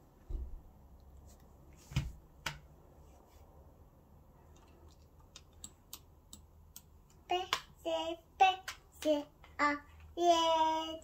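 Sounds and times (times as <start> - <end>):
toddler singing: 7.2 - 11.0.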